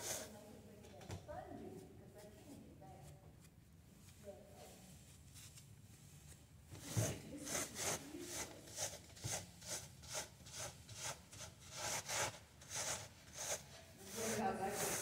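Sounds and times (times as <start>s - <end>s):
seed heads rubbed on mesh screen: 6.8s - 15.0s.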